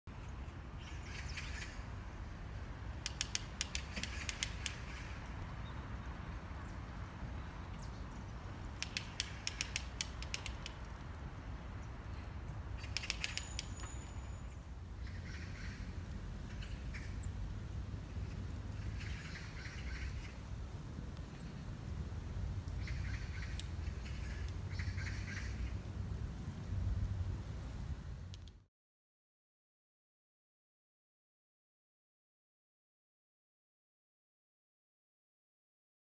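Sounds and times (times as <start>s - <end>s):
woodpecker pecking at a branch: 3.0s - 5.3s, 8.6s - 11.1s, 12.8s - 14.3s.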